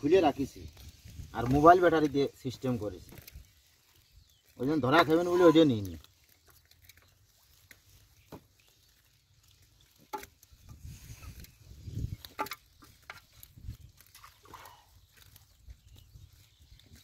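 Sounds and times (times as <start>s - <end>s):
hands squelching through wet mud: 0.1s - 17.0s.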